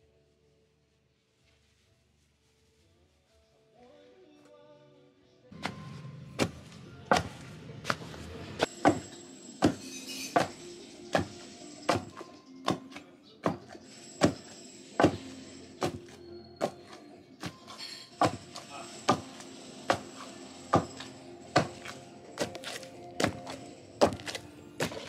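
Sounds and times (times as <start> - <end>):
background music: 3.4 - 25.0
wooden pestle pounding mash: 5.6 - 25.0.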